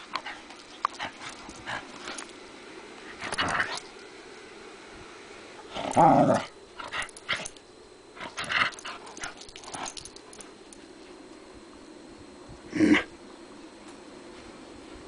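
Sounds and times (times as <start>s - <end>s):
dogs play growling: 0.0s - 2.4s, 3.0s - 4.0s, 5.6s - 11.2s.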